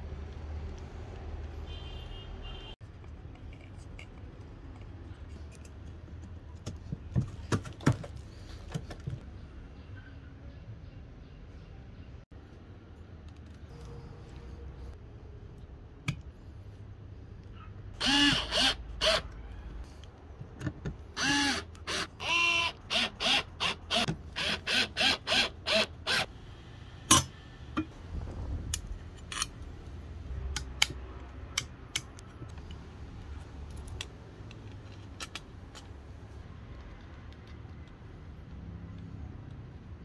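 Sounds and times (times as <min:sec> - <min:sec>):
cordless screwdriver motor bursts: 0:18.0 - 0:19.2, 0:21.2 - 0:26.3.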